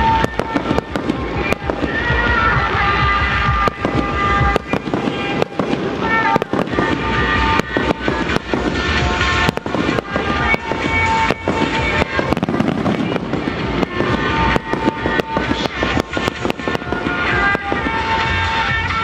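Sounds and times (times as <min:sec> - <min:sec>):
fireworks bangs and crackles: 0:00.0 - 0:19.0
music with sustained notes: 0:00.0 - 0:19.0.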